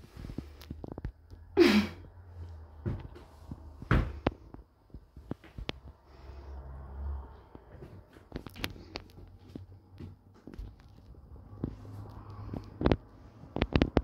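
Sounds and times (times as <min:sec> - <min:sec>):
footsteps on wooden stairs: 0:02.7 - 0:05.9, 0:07.6 - 0:12.8.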